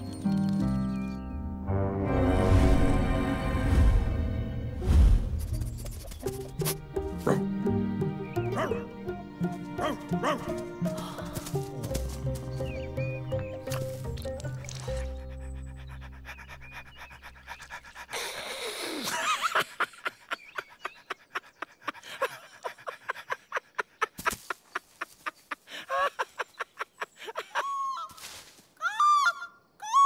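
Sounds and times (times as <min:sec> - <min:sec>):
cartoon dog panting: 0:15.1 - 0:18.6.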